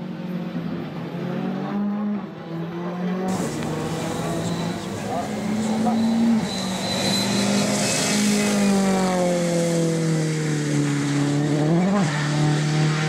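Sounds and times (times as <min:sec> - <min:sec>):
rally car engine passing: 0:00.1 - 0:13.0
tyres spraying water: 0:03.3 - 0:09.0
engine revs blip: 0:03.3 - 0:09.3.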